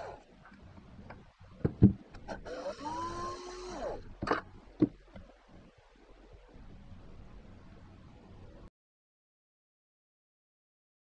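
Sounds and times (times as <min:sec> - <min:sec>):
cordless drill motor whine: 0:02.4 - 0:04.0.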